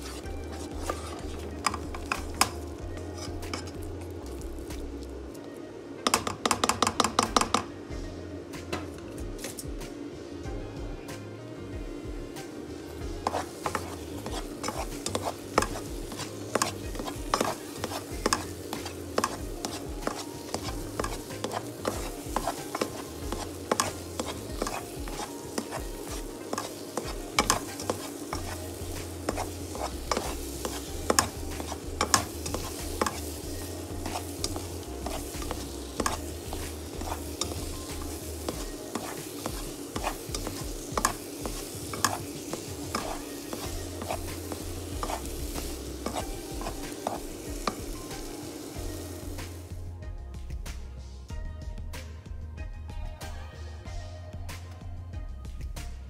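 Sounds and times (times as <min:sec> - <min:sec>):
spoon scraping and knocking pan: 0:00.0 - 0:05.0, 0:06.0 - 0:07.7, 0:13.0 - 0:49.7
butter sizzling: 0:00.0 - 0:07.7, 0:12.1 - 0:49.9.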